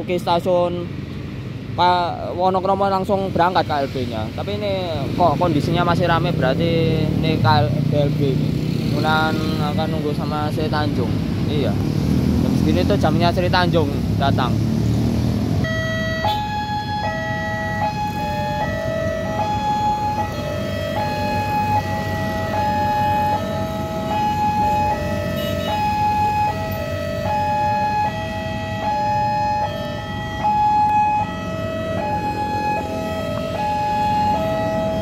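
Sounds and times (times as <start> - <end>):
road traffic idling: 0.0 - 35.0
level crossing two-tone alarm: 15.6 - 35.0.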